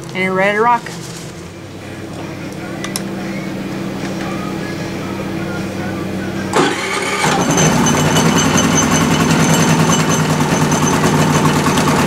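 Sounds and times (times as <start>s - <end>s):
generator engine running: 0.0s - 12.0s
thin high whine: 0.4s - 12.0s
generator engine cranking: 6.5s - 12.0s.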